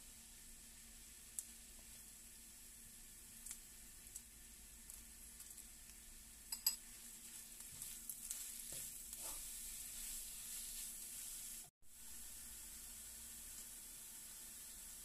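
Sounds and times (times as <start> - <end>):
vegetables sizzling in oil: 0.0 - 15.0
wooden spatula scraping pan: 6.8 - 11.7.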